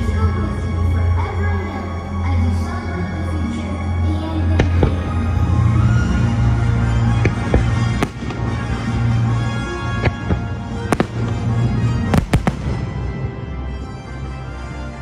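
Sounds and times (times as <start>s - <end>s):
music: 0.0s - 15.0s
fireworks bangs: 7.0s - 13.6s.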